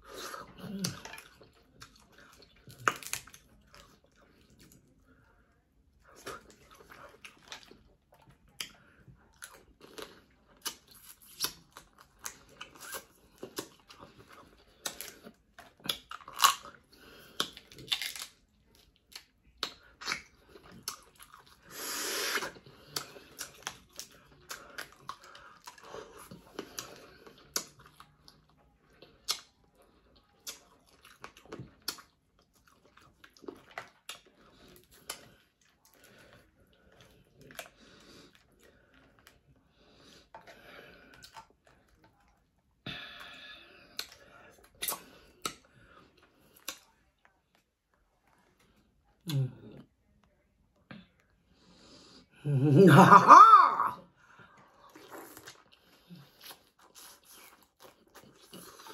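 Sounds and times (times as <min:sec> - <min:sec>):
chewing: 0:00.0 - 0:51.8, 0:54.2 - 0:58.9
crab shell cracking and tearing: 0:17.4 - 0:18.4.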